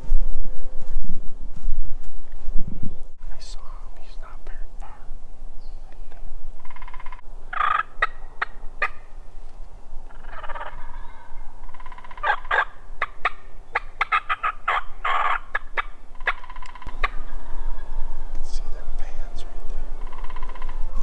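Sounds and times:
turkey clucks: 6.6s - 9.2s, 10.1s - 21.0s
turkeys gobbling: 6.6s - 9.3s, 10.1s - 21.0s.

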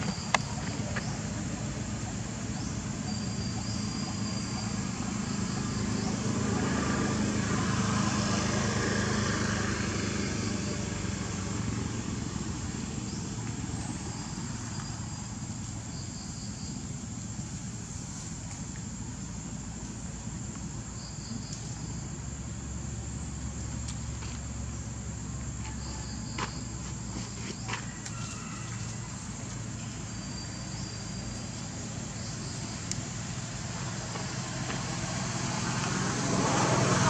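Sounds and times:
vehicle engine passing by: 0.0s - 16.0s, 21.2s - 37.0s.

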